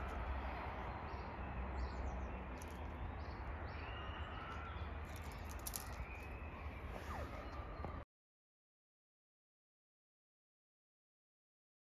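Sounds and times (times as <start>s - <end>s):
low outdoor hum: 0.0s - 8.1s.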